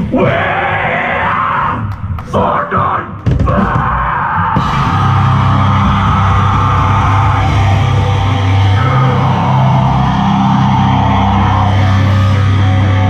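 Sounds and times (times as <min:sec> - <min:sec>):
heavy metal band playing live: 0:02.7 - 0:13.0
loud distorted electric guitar: 0:03.2 - 0:13.0.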